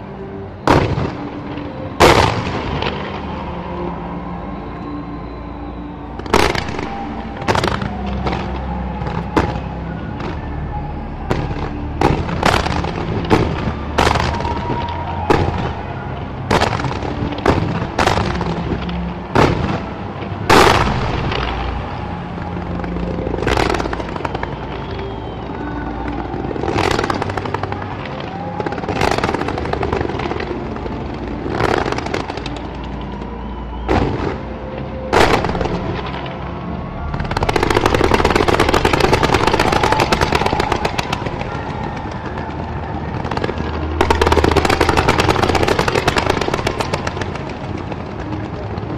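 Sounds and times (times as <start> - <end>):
fireworks bangs: 0.6 - 4.3, 6.0 - 48.9.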